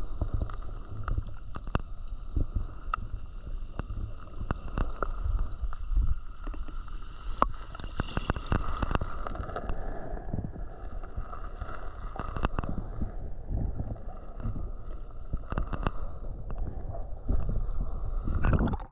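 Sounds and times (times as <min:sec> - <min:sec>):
muffled underwater rushing: 0:00.0 - 0:18.9
sharp underwater clicks: 0:15.4 - 0:16.7.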